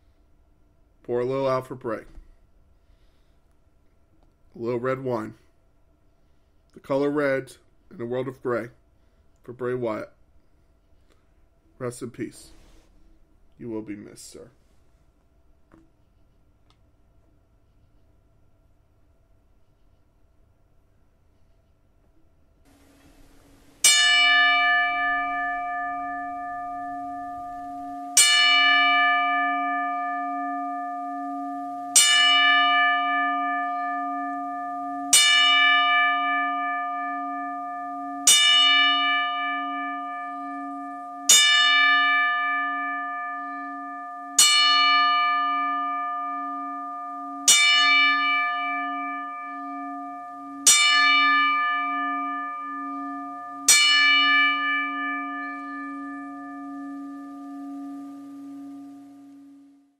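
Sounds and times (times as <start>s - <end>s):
bell tolling: 22.7s - 59.9s.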